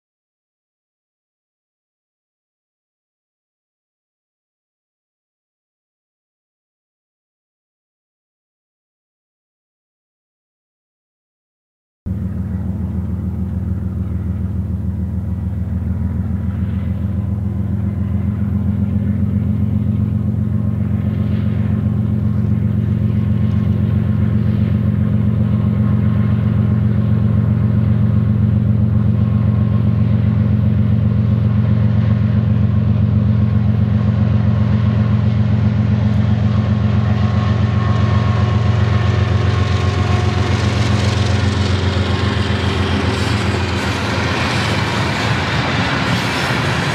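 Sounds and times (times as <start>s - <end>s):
locomotive engine rumble: 12.1s - 46.9s
train wheels clattering on rails: 35.0s - 46.9s.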